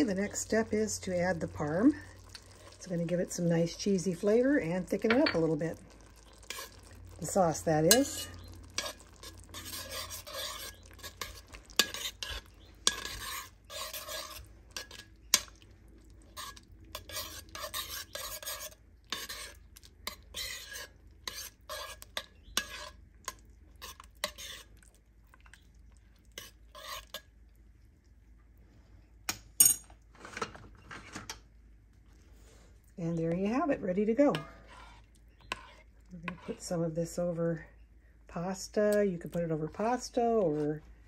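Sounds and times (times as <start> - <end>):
spoon clinking on pot: 5.1 - 5.5, 7.9 - 9.0, 9.9 - 13.3
metal spoon scraping thick sauce: 5.1 - 15.6, 16.2 - 25.5, 26.2 - 27.3, 34.2 - 36.8.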